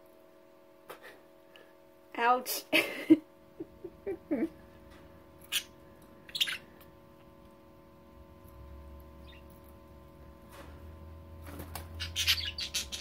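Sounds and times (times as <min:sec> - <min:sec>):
faint steady hum: 0:00.0 - 0:13.0
budgerigars chirping: 0:05.4 - 0:06.7, 0:12.0 - 0:13.0.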